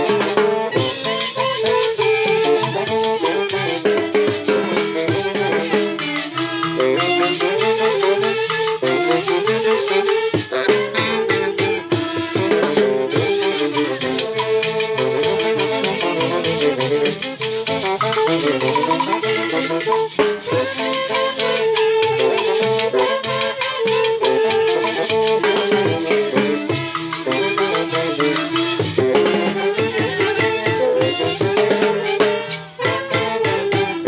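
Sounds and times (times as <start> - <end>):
clarinet: 0.0 - 34.0
saxophones: 0.0 - 34.0
trumpet: 0.0 - 34.0
metal shaker: 13.2 - 31.6.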